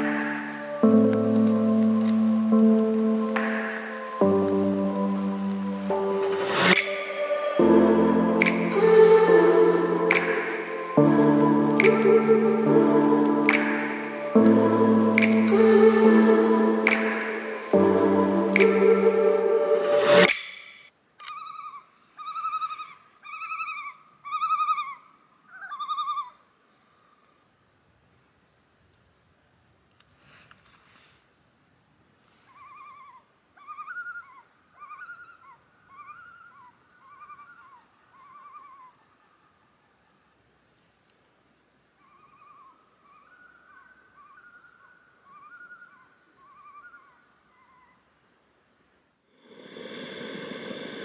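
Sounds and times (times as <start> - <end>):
loon tremolo call: 1.7 - 20.3.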